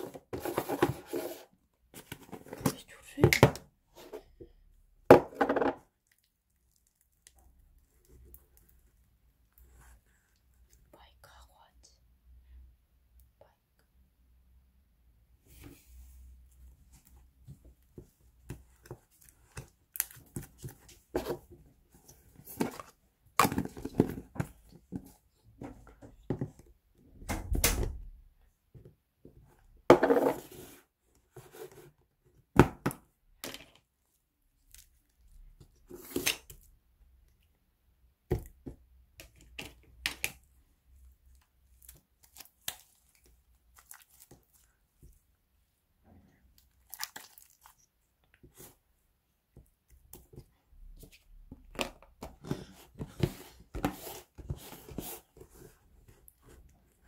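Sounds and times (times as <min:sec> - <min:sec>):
sticky slime squishing: 0:41.3 - 0:45.3, 0:46.4 - 0:48.5.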